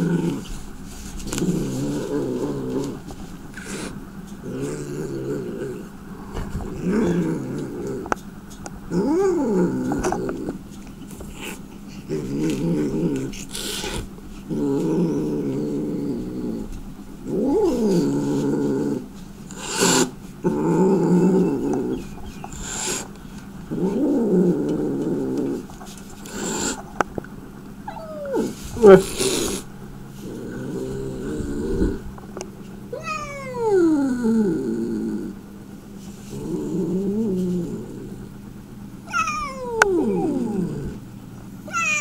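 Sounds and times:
cat growling: 0.0 - 8.2, 8.9 - 10.7, 11.3 - 27.0, 27.8 - 32.1, 32.9 - 35.4, 36.2 - 38.4, 39.0 - 42.0
cat hissing: 3.5 - 8.0, 13.2 - 14.2, 19.5 - 20.2, 21.8 - 23.2, 26.2 - 26.9, 27.9 - 32.0, 32.9 - 33.8, 39.1 - 41.0, 41.7 - 42.0
cat yowling: 27.9 - 28.5, 32.9 - 33.9, 39.1 - 40.6, 41.7 - 42.0.

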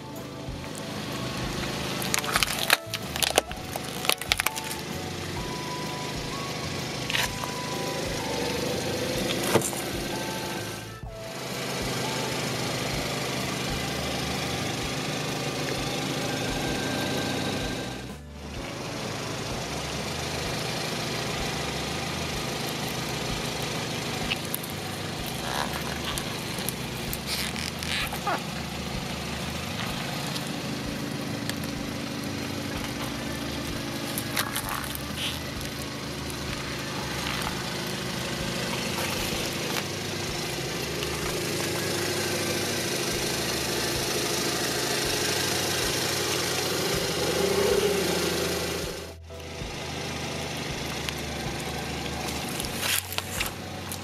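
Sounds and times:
car engine running slowly: 0.0 - 54.0
toy fruits cracking: 1.7 - 4.9, 24.2 - 28.8, 29.4 - 42.0, 52.1 - 54.0.

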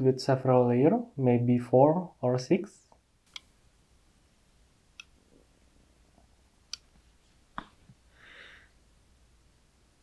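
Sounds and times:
small sharp clicks: 2.9 - 3.5.

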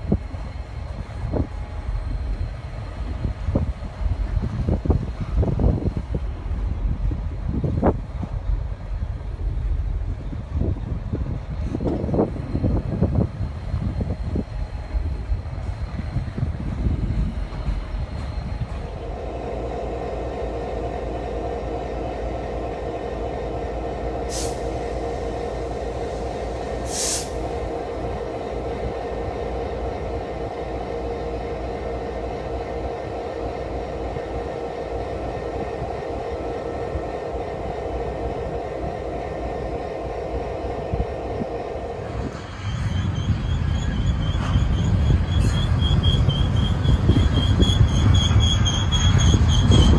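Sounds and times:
diesel locomotive engine drone: 0.0 - 49.9
short hisses: 26.8 - 27.4.

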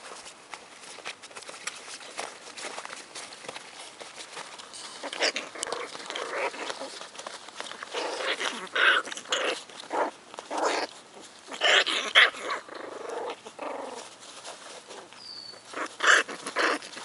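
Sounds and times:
puppies yipping and squealing: 4.8 - 17.0.

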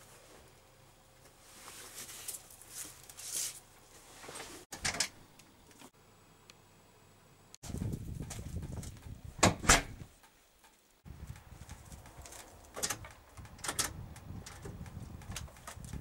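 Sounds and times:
nylon parka rustling: 1.3 - 4.7.

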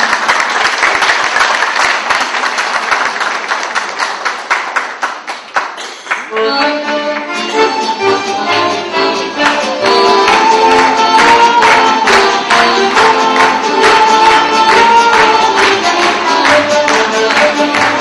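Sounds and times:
audience applauding: 0.0 - 7.4, 9.3 - 18.0
accordions playing held chords: 6.2 - 18.0.

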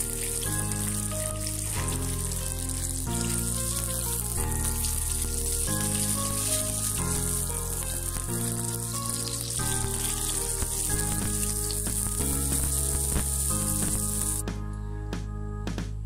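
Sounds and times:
fish sizzling in hot oil: 0.0 - 14.4
background music: 0.0 - 16.0.

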